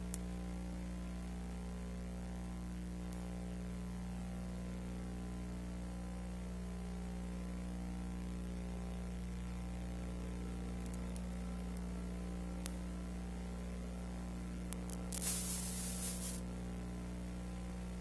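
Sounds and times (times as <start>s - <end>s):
low electrical hum: 0.0s - 18.0s
burst of hiss: 15.1s - 16.4s
faint hiss: 15.1s - 16.5s.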